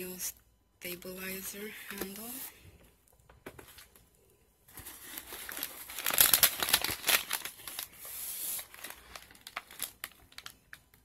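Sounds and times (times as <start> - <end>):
plastic packaging crinkling: 4.7 - 11.0.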